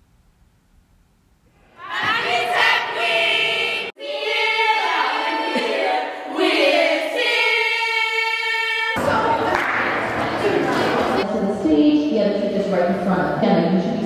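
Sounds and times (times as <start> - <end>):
girls singing together: 1.7 - 11.2.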